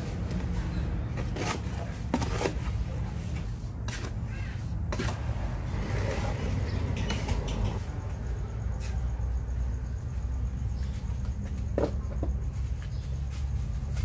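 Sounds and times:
tool scraping wet cement: 1.2 - 7.7.

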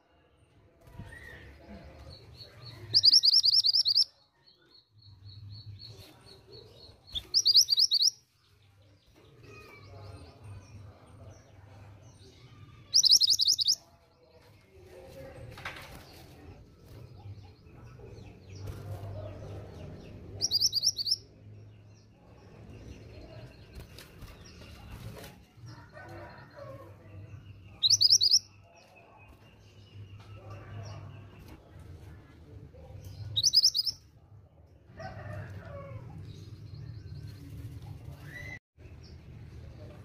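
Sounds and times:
bird calling with trilled notes: 3.0 - 4.1, 7.1 - 8.2, 12.9 - 13.8.

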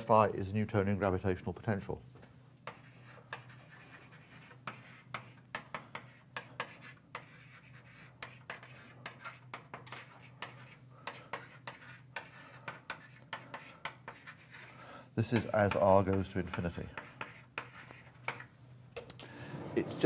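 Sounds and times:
writing taps on a board: 4.4 - 7.5, 8.2 - 14.4, 15.3 - 19.1.

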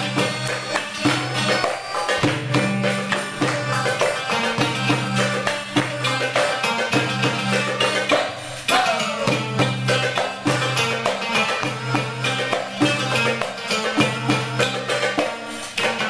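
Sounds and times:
accordion chords: 0.0 - 7.0, 11.2 - 15.8
plucked stringed instrument: 0.0 - 16.0.

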